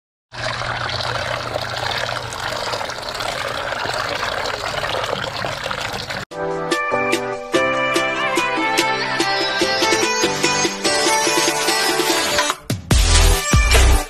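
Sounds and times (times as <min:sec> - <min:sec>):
tap water splashing into basin: 0:00.4 - 0:06.2
music: 0:06.3 - 0:14.0.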